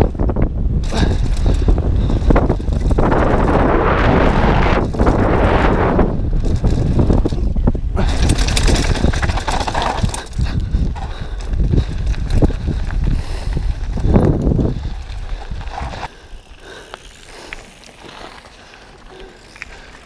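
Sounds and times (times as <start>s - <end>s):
wind rumbling on microphone: 0.0s - 18.2s
bike rattling over bumps: 0.0s - 20.0s
tyres crunching on gravel: 8.0s - 20.0s.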